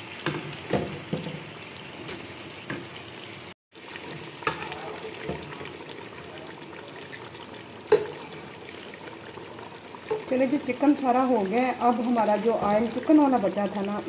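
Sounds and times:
pot bubbling: 0.0s - 14.0s.

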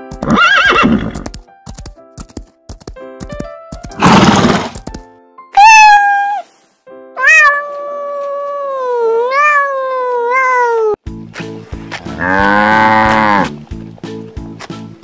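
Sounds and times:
kitten meowing: 5.6s - 6.5s, 7.2s - 11.0s
cow mooing: 12.0s - 13.6s.

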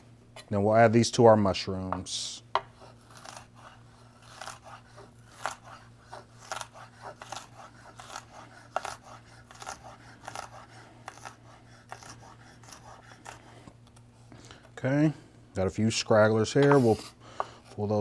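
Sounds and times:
knife chopping on wooden board: 1.9s - 13.4s.

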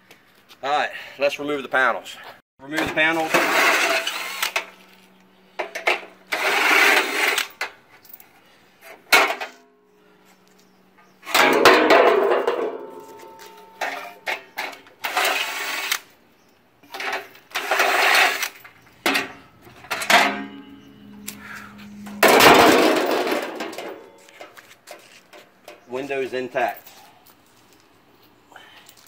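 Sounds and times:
cordless drill bursts: 3.2s - 4.6s
metal panels rattling: 11.3s - 14.8s, 16.9s - 21.0s, 22.0s - 24.6s.

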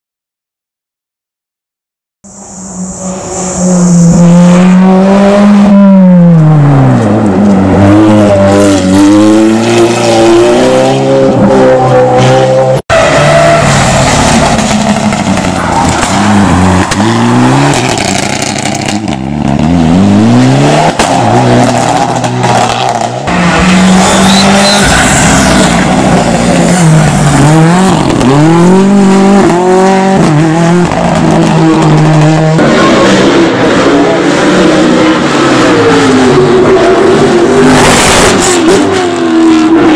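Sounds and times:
race car engines revving: 2.3s - 39.9s.

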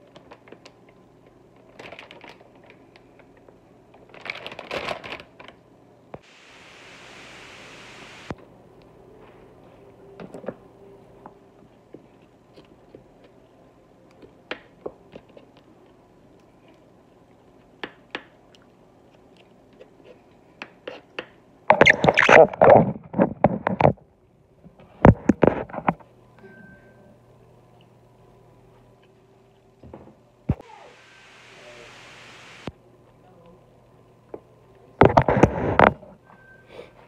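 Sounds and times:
loud crackling rustle: 6.2s - 8.3s.

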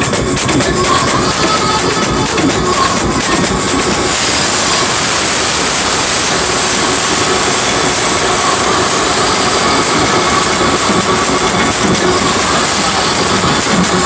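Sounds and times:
electronic dance music: 0.0s - 14.0s.

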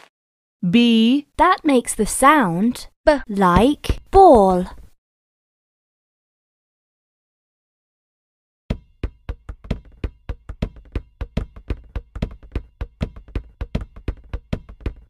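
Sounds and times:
rhythmic knocking: 8.7s - 15.0s.

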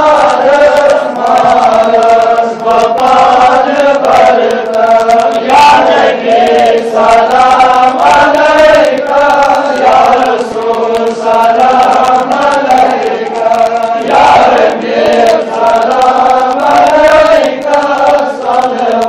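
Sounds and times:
men chanting a supplication: 0.0s - 19.0s.

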